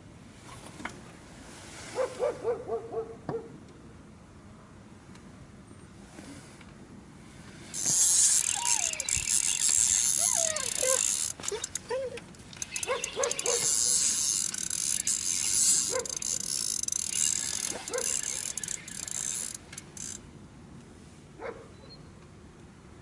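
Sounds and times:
mechanical clicking: 0:07.8 - 0:20.2
dog whining in high yelps: 0:08.5 - 0:09.1, 0:10.0 - 0:12.2, 0:12.8 - 0:13.9, 0:15.9 - 0:16.2, 0:17.9 - 0:18.3.

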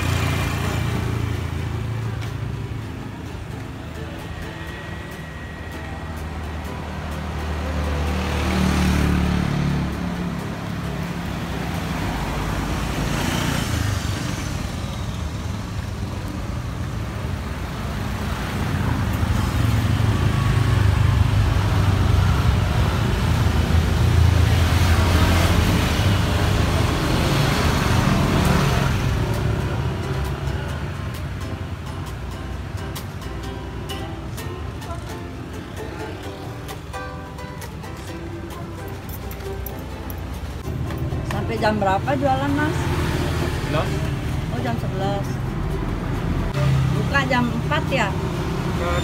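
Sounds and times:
scooters and cars passing: 0:00.0 - 0:49.0.

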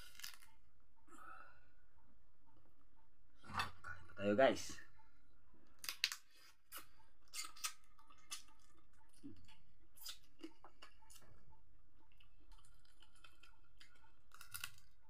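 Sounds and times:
chewing and crunching crab shell: 0:00.0 - 0:00.6, 0:05.7 - 0:15.0.

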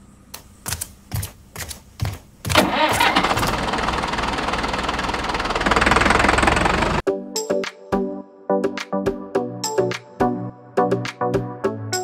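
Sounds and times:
tractor engine cranking: 0:02.5 - 0:07.0
tractor engine running: 0:02.5 - 0:07.1.

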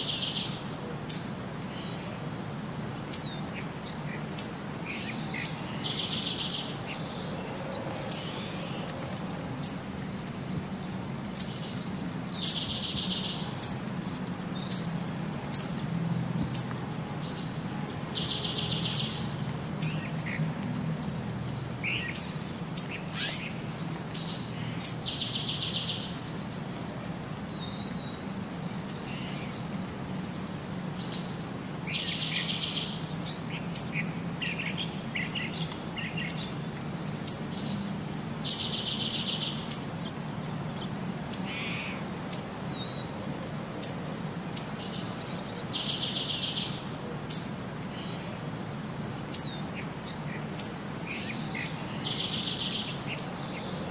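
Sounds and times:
birds chirping: 0:00.0 - 0:26.7, 0:27.3 - 0:43.2, 0:43.8 - 0:53.9.

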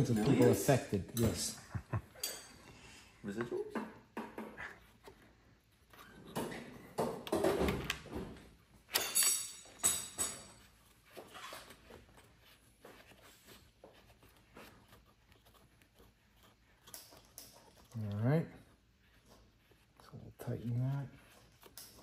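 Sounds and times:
sharp metal clinks: 0:08.9 - 0:10.5.

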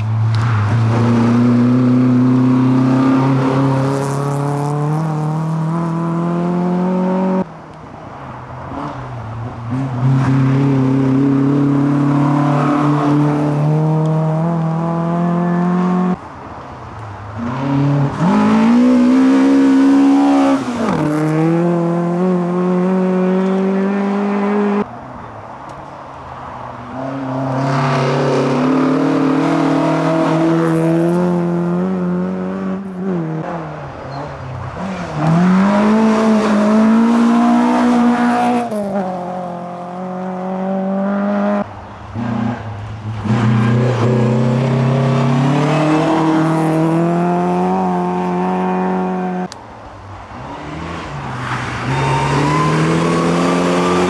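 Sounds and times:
rally car engines accelerating: 0:27.0 - 0:49.6.

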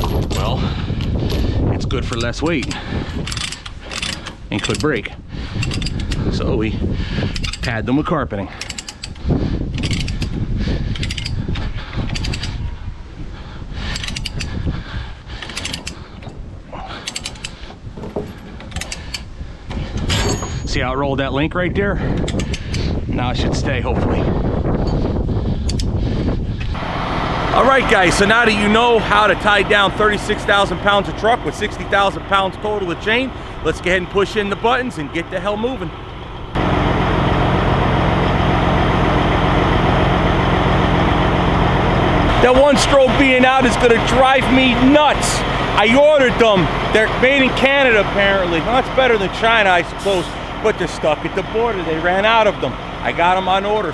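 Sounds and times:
diesel engine running steadily: 0:00.0 - 0:07.8, 0:08.4 - 0:20.7, 0:24.3 - 0:53.9
metal chain clinking and rattling: 0:02.2 - 0:06.0, 0:08.6 - 0:09.2, 0:09.8 - 0:11.4, 0:15.4 - 0:19.3, 0:19.9 - 0:20.8.

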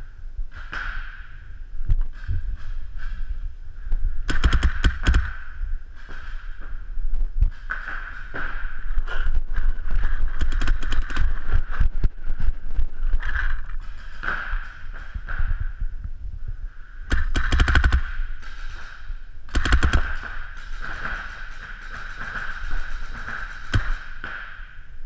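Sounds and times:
paintball markers firing rapidly: 0:04.3 - 0:06.8, 0:07.4 - 0:12.5, 0:17.1 - 0:24.8.

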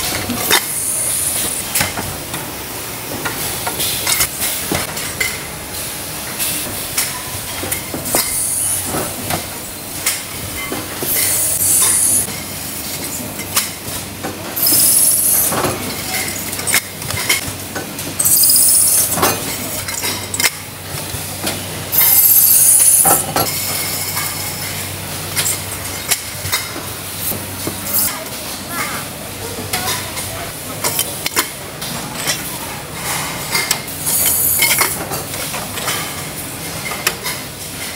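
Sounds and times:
loud machine hiss: 0:00.6 - 0:01.8, 0:08.2 - 0:08.9, 0:11.1 - 0:12.3, 0:14.6 - 0:15.5, 0:18.2 - 0:19.2, 0:21.9 - 0:23.2, 0:34.0 - 0:34.9.

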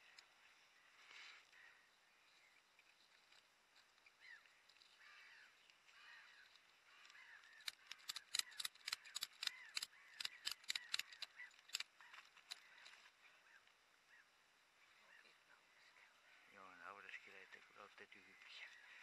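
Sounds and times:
faint birdsong: 0:00.0 - 0:19.0
ratchet strap clicking: 0:07.6 - 0:11.9.

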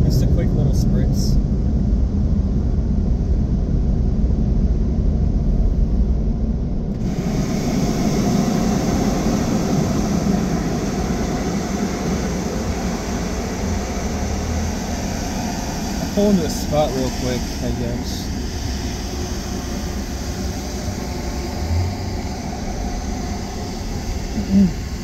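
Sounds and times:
car rolling rumble: 0:00.0 - 0:25.0
steady airy hiss: 0:07.0 - 0:25.0.

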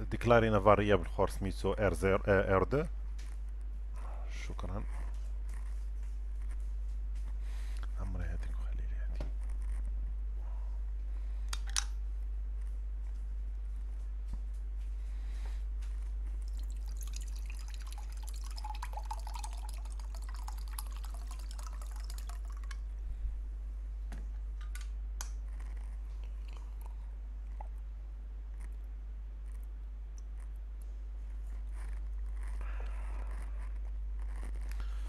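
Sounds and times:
steady low hum: 0:00.0 - 0:35.0
water pouring into a glass: 0:16.4 - 0:22.8.

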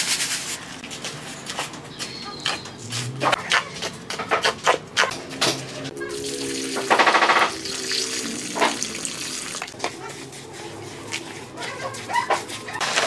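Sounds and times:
water splashing onto cement mix: 0:06.2 - 0:09.8.

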